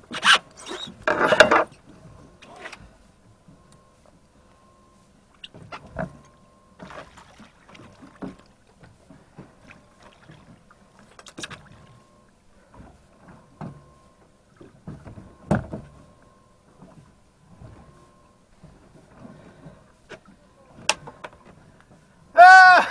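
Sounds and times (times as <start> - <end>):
water splashing: 6.8 - 12.0
fish knocking against boat: 14.6 - 16.0.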